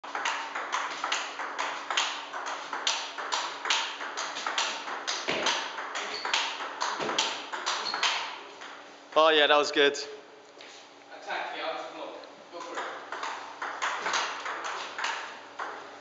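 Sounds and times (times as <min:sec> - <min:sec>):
table tennis ball clicking: 0:00.2 - 0:08.3.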